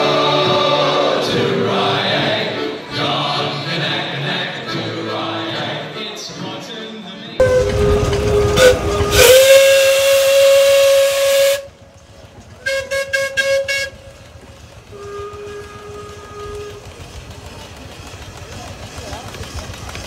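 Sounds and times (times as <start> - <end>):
steam engine whistle: 7.4 - 11.8, 12.6 - 14.1, 14.9 - 17.0
rush of steam: 7.4 - 20.0.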